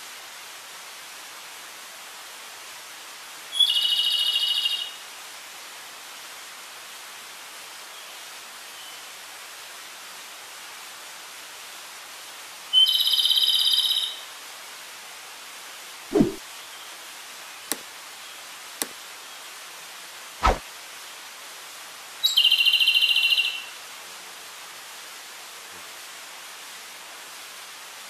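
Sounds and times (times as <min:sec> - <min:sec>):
steady hiss: 0:15.6 - 0:22.2.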